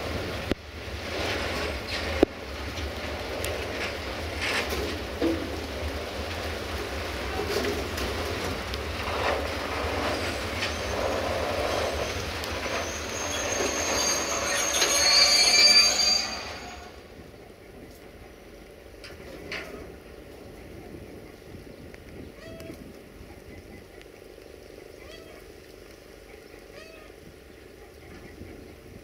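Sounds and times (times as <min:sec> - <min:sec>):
train rolling on rails: 0:00.0 - 0:26.4
high-pitched wheel squeal: 0:10.1 - 0:17.1.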